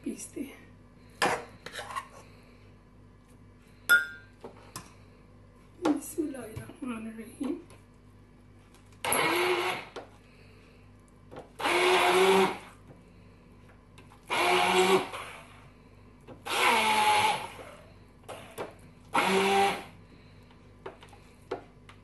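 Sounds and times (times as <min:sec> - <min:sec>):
electric hand blender grinding: 0:09.0 - 0:10.0, 0:11.6 - 0:12.7, 0:14.3 - 0:15.5, 0:16.4 - 0:17.8, 0:19.1 - 0:20.0.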